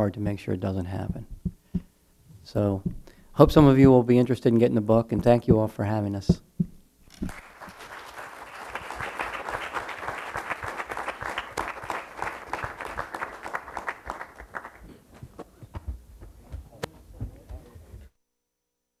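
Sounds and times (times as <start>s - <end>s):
audience applauding: 7.2s - 15.3s.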